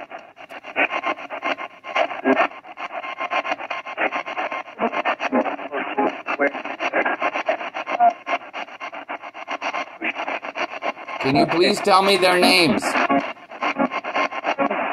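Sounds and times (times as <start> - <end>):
broken radio voice fragments: 11.1 - 14.9
radio static sweeping: 11.2 - 14.9.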